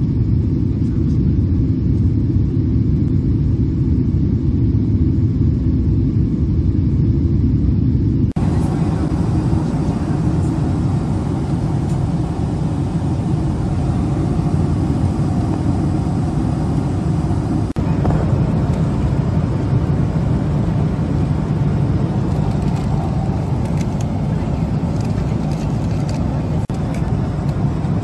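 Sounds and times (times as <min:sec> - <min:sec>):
airliner cabin engine rumble: 0:00.0 - 0:28.0.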